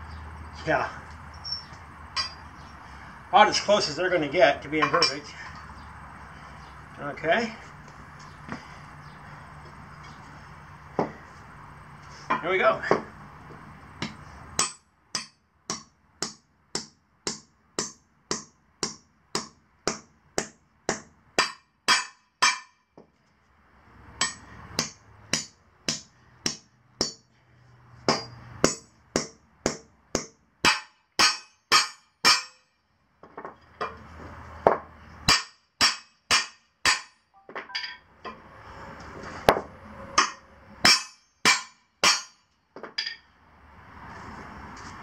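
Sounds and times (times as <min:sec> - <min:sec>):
sledge hammer striking steel bolts: 0:02.2 - 0:02.5, 0:14.0 - 0:22.8, 0:24.2 - 0:27.3, 0:28.1 - 0:32.8, 0:35.2 - 0:38.1, 0:40.2 - 0:43.2.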